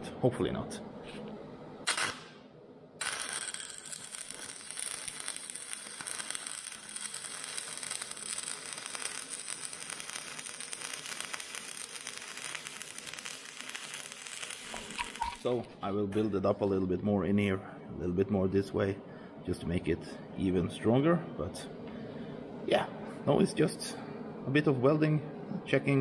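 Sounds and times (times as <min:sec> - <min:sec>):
arc welding crackle and hiss: 0:01.8 - 0:02.4, 0:03.0 - 0:15.6.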